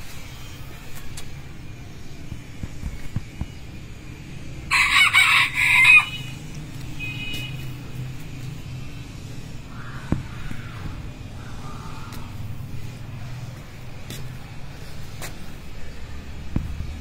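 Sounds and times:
rooster crowing: 4.7 - 6.4.

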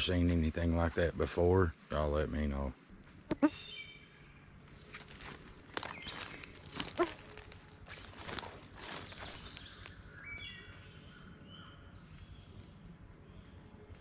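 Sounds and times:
footsteps crunching on forest floor: 4.7 - 10.6.

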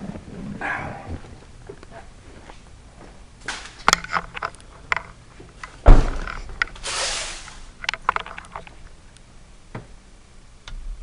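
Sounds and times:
heavy thump: 5.8 - 6.6
rustling scrape: 6.4 - 7.7.

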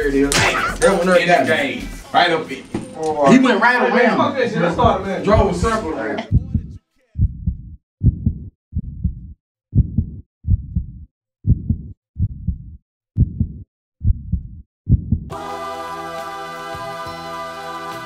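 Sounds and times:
heartbeat thumping: 4.7 - 15.3.

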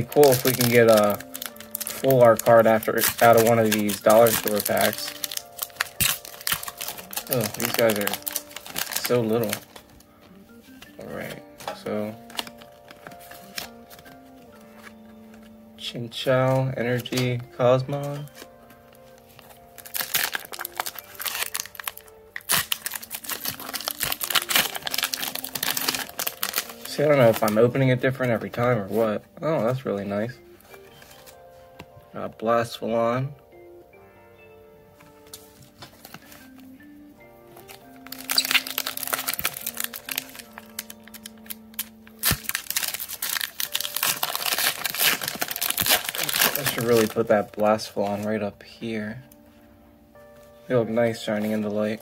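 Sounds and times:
foil wrapper crinkling and tearing: 0.0 - 10.1, 12.2 - 15.0, 19.1 - 27.7, 37.6 - 48.3
soft background music: 0.0 - 52.0.

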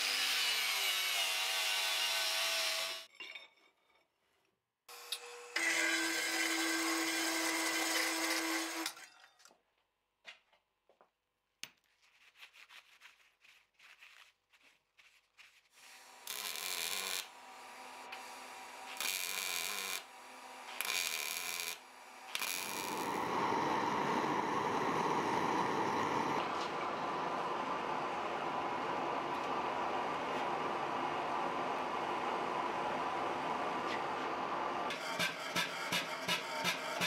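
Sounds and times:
cold saw cutting steel: 0.0 - 3.1, 4.9 - 9.0, 15.8 - 26.4, 34.9 - 37.0
welder bursts: 15.9 - 17.4, 20.7 - 26.4
steady hum: 22.8 - 34.9.

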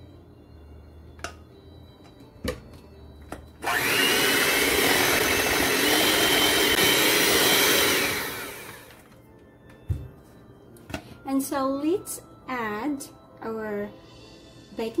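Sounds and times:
electric mixer motor whine: 3.6 - 9.1.

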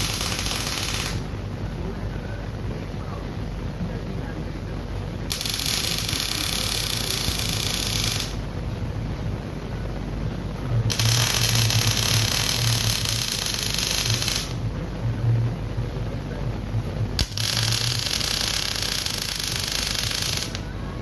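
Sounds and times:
welding arc hissing and crackling: 0.0 - 1.6, 5.3 - 8.6, 10.7 - 14.7, 17.0 - 20.7
welding machine hum: 0.0 - 21.0.

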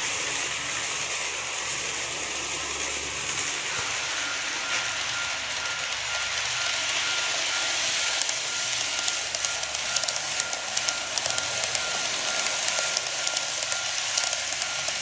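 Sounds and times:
model train wheels whirring: 0.0 - 15.0.

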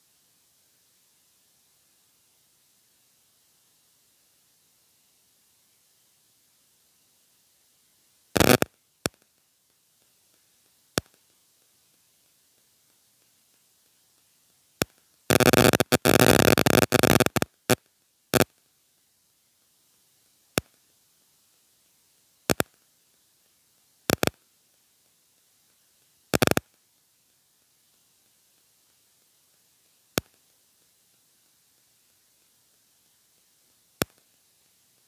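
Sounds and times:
crackling static: 0.0 - 35.0
sharp pops: 8.4 - 9.3, 14.8 - 17.8, 22.5 - 22.8, 24.1 - 24.4, 26.3 - 26.7, 34.0 - 34.3.

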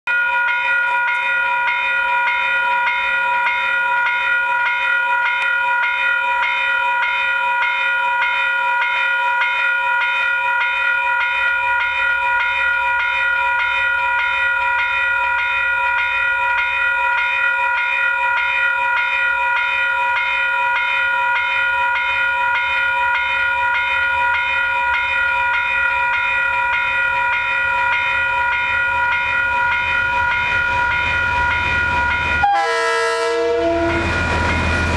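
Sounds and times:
level crossing bell ringing: 0.1 - 34.9
train rumbling: 23.6 - 34.9.

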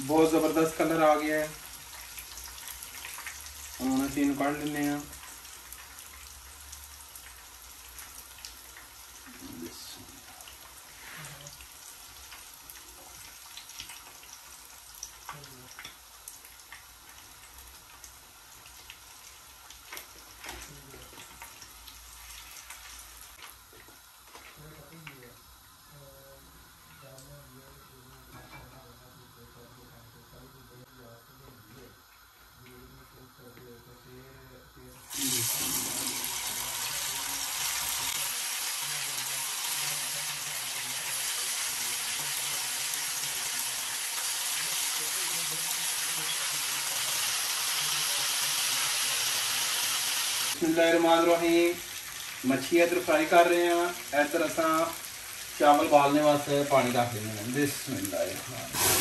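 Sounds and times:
fish frying in hot oil: 0.0 - 29.4, 30.8 - 59.0
oil crackling and popping: 0.2 - 25.3.

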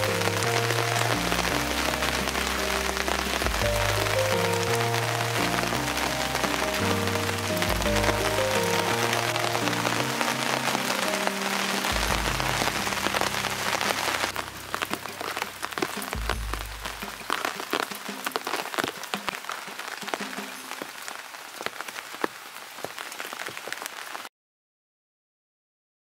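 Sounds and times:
background music: 0.0 - 21.1
raindrops ticking: 0.0 - 24.3
steady rain: 0.0 - 24.3.

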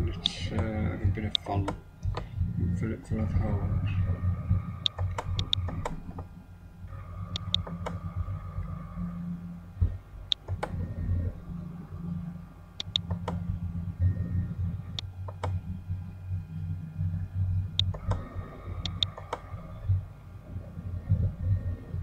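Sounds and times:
low steady hum: 0.0 - 22.0
computer mouse clicks: 4.8 - 6.3, 7.3 - 8.0, 9.8 - 10.8, 12.8 - 13.4, 15.0 - 15.6, 17.8 - 19.5.

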